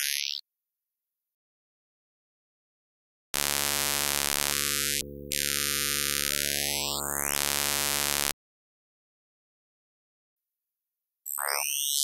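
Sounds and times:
harsh synthetic hiss with tones: 3.4 - 8.3.

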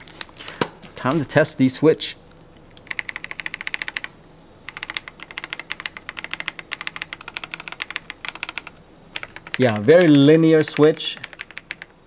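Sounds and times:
fast typing on mechanical keyboard: 2.8 - 4.1, 4.7 - 12.0.

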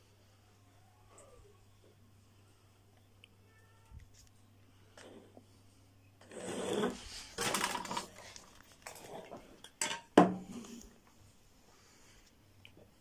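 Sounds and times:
gritty scraping on stone: 6.2 - 7.3.

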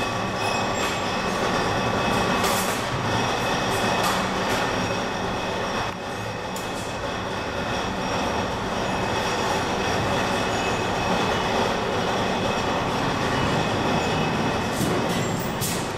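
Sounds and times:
steady mechanical noise: 0.0 - 15.9.

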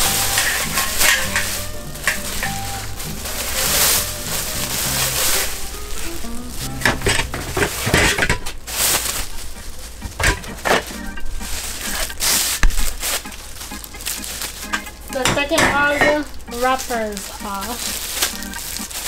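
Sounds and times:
background music: 0.0 - 19.0
plastic wrap crinkling: 0.0 - 19.0.

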